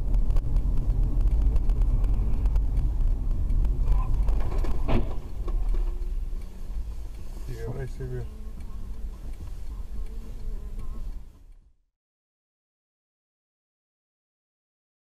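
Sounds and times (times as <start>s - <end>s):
car engine and road rumble: 0.0s - 11.9s.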